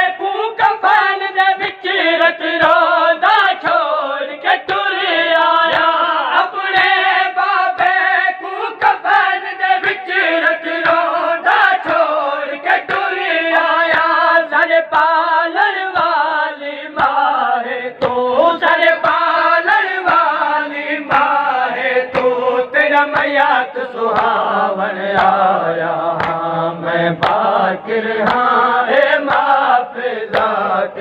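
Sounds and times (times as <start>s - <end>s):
men chanting a lament: 0.0s - 31.0s
chest-beating slaps: 21.0s - 23.4s, 25.1s - 25.5s, 26.2s - 26.5s, 27.1s - 29.6s, 30.3s - 31.0s.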